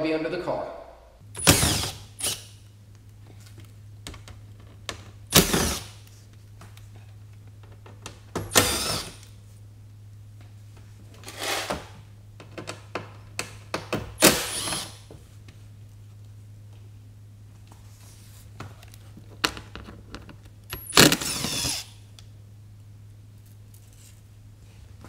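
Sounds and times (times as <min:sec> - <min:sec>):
cordless drill whirring: 0:01.4 - 0:02.6, 0:05.3 - 0:06.0, 0:08.5 - 0:09.3, 0:14.2 - 0:15.1, 0:20.8 - 0:22.0.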